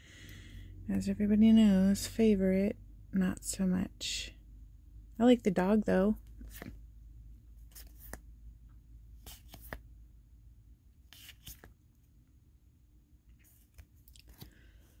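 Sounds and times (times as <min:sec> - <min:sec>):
trading cards rustling: 0:06.4 - 0:06.8, 0:07.6 - 0:08.3, 0:09.2 - 0:09.8, 0:11.1 - 0:11.8, 0:13.4 - 0:15.0.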